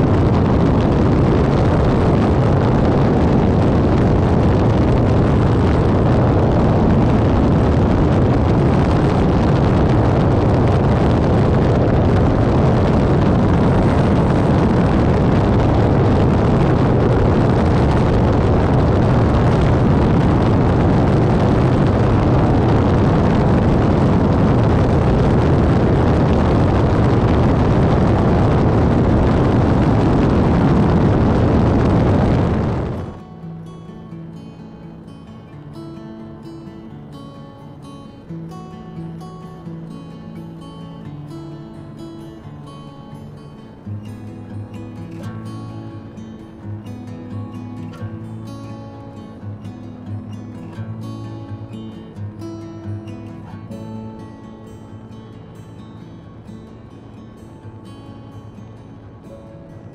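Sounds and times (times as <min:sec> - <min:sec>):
helicopter rotor and turbine: 0:00.0 - 0:33.2.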